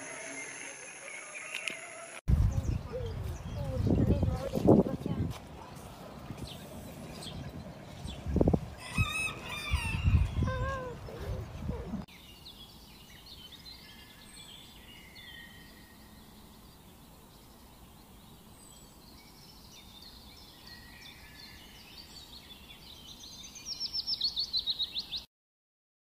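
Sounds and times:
songbirds chirping: 2.3 - 25.3.

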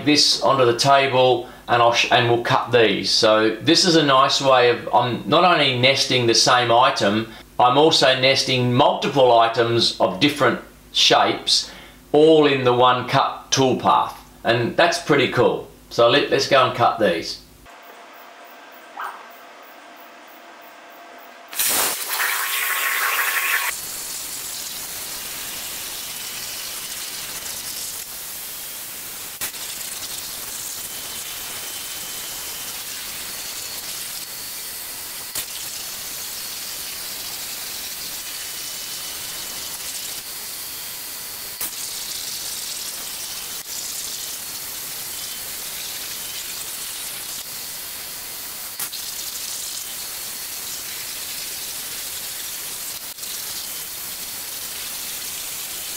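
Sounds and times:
plasma torch hissing: 21.5 - 55.9.

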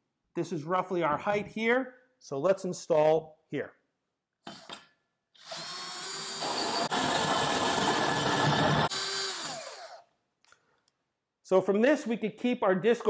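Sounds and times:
power drill cutting through drywall: 5.4 - 10.1.

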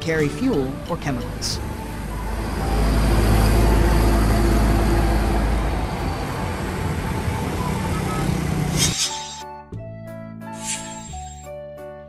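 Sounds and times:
road traffic noise: 0.0 - 9.4
truck diesel engine rumbling past: 1.2 - 9.0
motorbikes: 1.4 - 9.0.

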